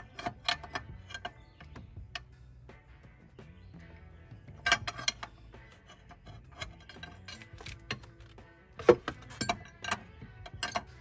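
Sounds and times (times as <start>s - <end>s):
hand tools clicking on metal: 0.0s - 2.3s, 4.6s - 11.0s
soft background music: 0.0s - 11.0s.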